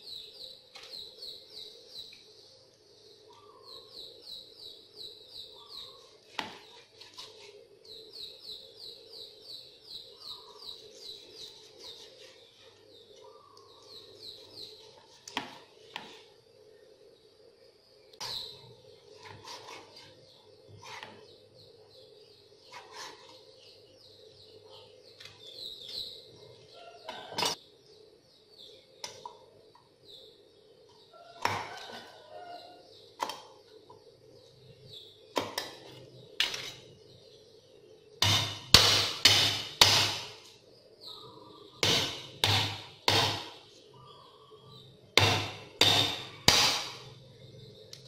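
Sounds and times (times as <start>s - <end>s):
cleaver chopping on wooden board: 38.2s - 40.4s, 45.2s - 47.0s.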